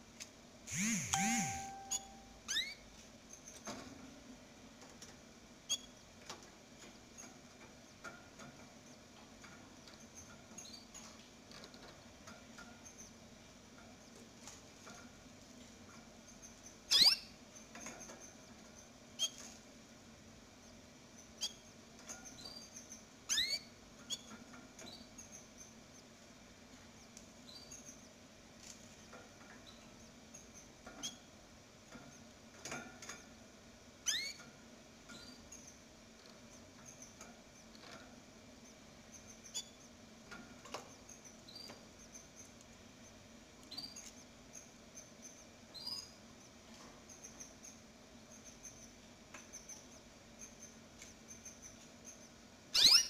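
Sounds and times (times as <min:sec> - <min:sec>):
faint low hum: 0:00.0 - 0:13.1
canaries chirping: 0:00.8 - 0:02.8, 0:16.9 - 0:17.3, 0:22.4 - 0:24.2, 0:34.1 - 0:34.4, 0:52.8 - 0:53.0.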